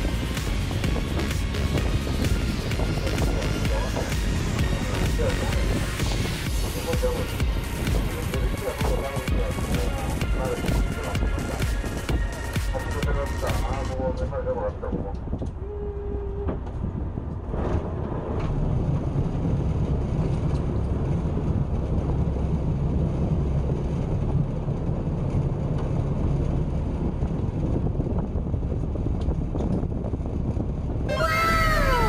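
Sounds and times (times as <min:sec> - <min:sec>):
boat engine rumbling: 0:00.0 - 0:32.0.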